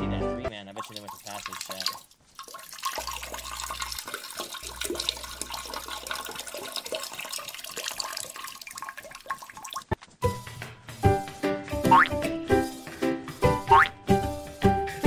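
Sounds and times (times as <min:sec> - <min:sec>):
water running in toilet bowl: 0:00.8 - 0:10.0.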